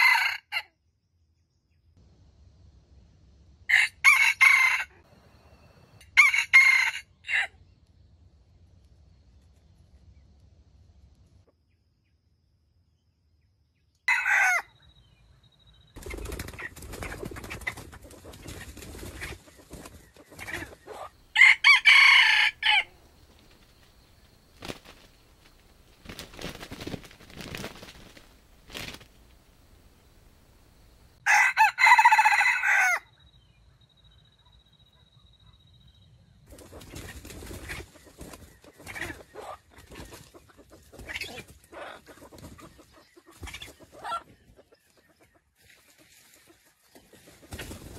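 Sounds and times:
rooster crowing: 0:00.0 - 0:00.6, 0:03.7 - 0:05.1, 0:06.0 - 0:07.6, 0:14.1 - 0:14.8, 0:20.9 - 0:23.0, 0:31.2 - 0:33.1
wings flapping in dry leaves: 0:16.0 - 0:21.0, 0:22.6 - 0:29.9, 0:36.5 - 0:44.3, 0:45.6 - 0:47.9.

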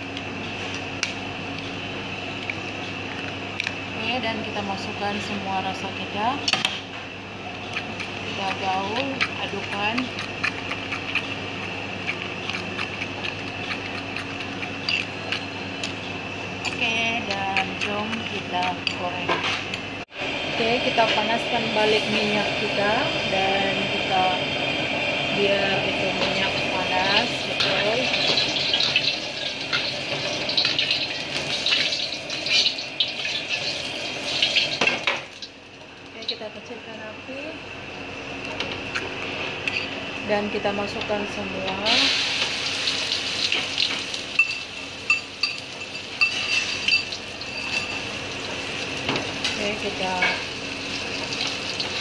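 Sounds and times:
steady background hum: 0:00.0 - 0:52.0
gas burner hissing: 0:20.0 - 0:35.5, 0:40.2 - 0:52.0.

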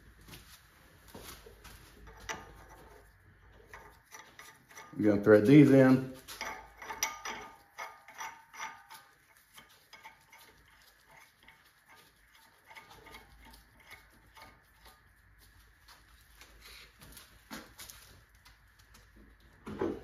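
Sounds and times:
metal rods clicking and clinking: 0:02.0 - 0:15.2.

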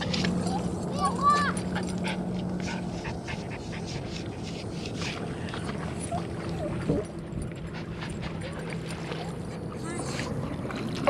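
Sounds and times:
dog panting: 0:01.6 - 0:06.2, 0:07.4 - 0:10.2.

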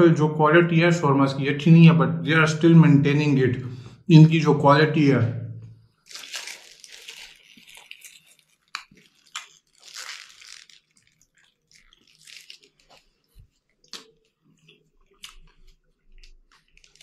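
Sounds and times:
biting into a wrap: 0:06.0 - 0:17.0
chewing with sharp clicks: 0:06.9 - 0:17.0.

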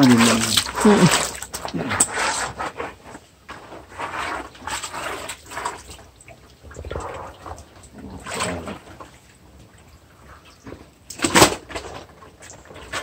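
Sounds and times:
cloth swishing in water: 0:00.0 - 0:09.2.

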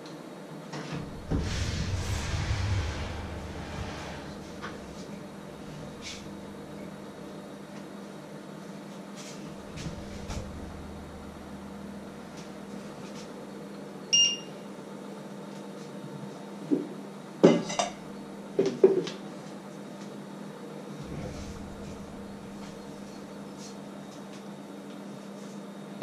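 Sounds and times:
faint steady hum: 0:00.9 - 0:08.4, 0:09.3 - 0:14.7, 0:21.0 - 0:24.0.

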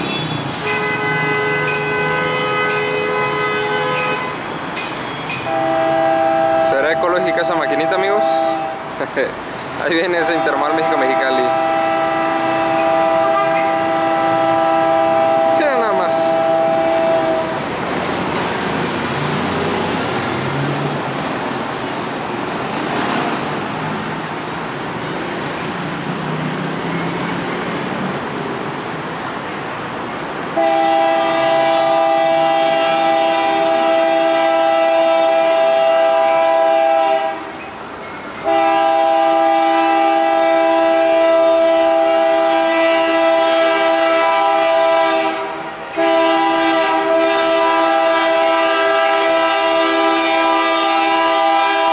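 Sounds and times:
locomotive air horn blasts: 0:00.0 - 0:04.4, 0:05.5 - 0:08.9, 0:10.3 - 0:17.6, 0:30.6 - 0:37.5, 0:38.4 - 0:51.9
diesel locomotive engine: 0:00.0 - 0:51.9.

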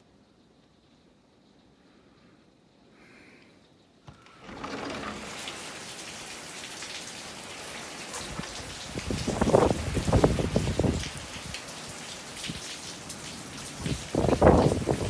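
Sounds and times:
heavy rain pouring: 0:04.1 - 0:15.0.

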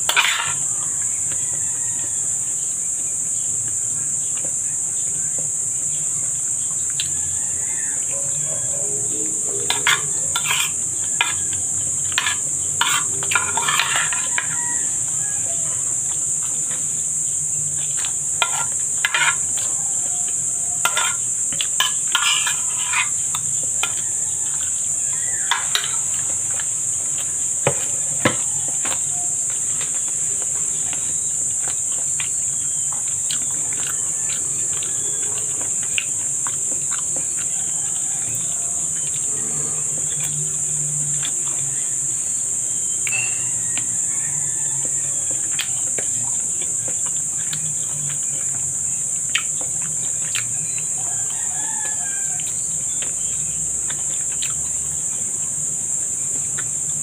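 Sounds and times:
high-pitched insect chirring: 0:00.0 - 0:57.0
spoon scraping ceramic bowl: 0:00.1 - 0:00.7, 0:09.6 - 0:11.5, 0:12.1 - 0:15.0, 0:18.0 - 0:19.7, 0:20.8 - 0:24.1, 0:25.1 - 0:26.2
chewing: 0:03.7 - 0:57.0.

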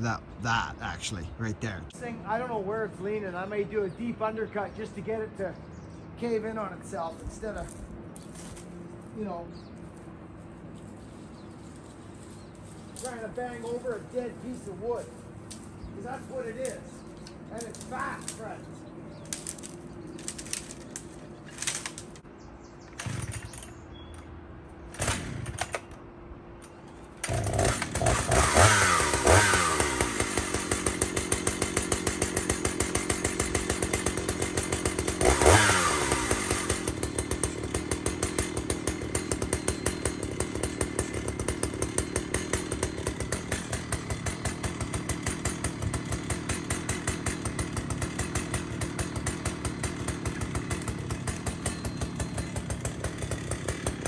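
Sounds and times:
chainsaw starting and revving: 0:19.2 - 0:22.2, 0:22.9 - 0:23.7, 0:24.9 - 0:25.9, 0:27.1 - 0:54.0.

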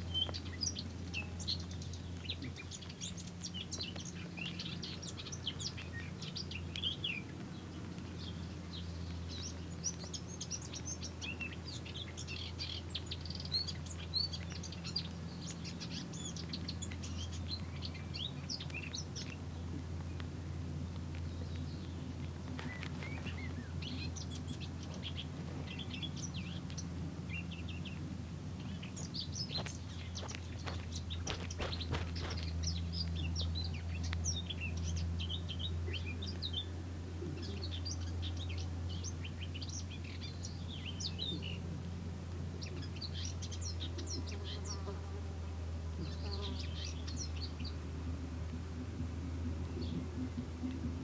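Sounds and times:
songbirds chirping: 0:00.0 - 0:51.0
steady low hum: 0:00.0 - 0:51.0.

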